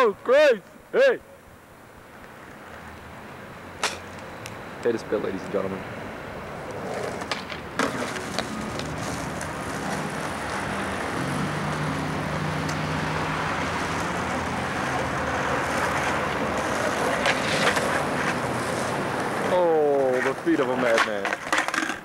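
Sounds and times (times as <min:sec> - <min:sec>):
skateboard wheels rolling on asphalt: 0:01.9 - 0:22.0
skateboard clacks: 0:06.9 - 0:10.7, 0:15.6 - 0:22.0.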